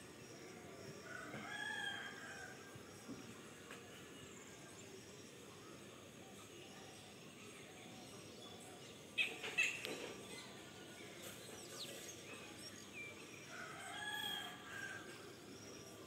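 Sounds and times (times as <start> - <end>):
rooster crowing: 13.6 - 15.0.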